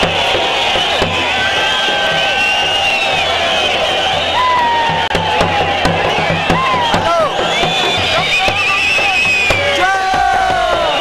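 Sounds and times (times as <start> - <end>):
crowd shouting and crying out: 0.0 - 11.0
sharp drum strokes: 4.1 - 11.0.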